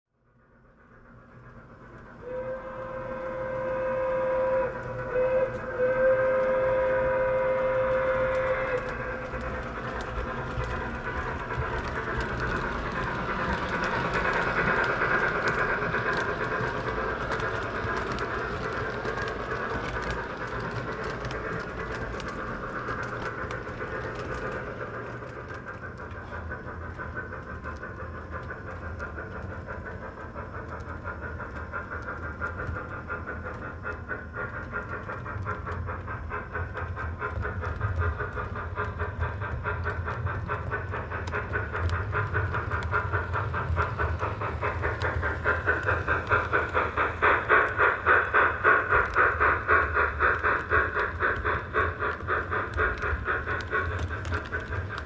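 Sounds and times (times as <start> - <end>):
steam locomotive chuffing: 0.3 - 55.0
model train whistle: 2.2 - 8.9
wheels clicking over track: 2.8 - 55.0.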